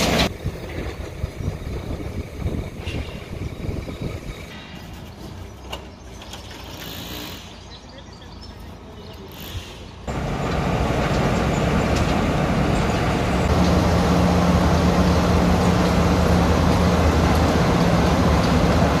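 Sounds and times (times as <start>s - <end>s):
engine running with low hum: 10.1s - 19.0s.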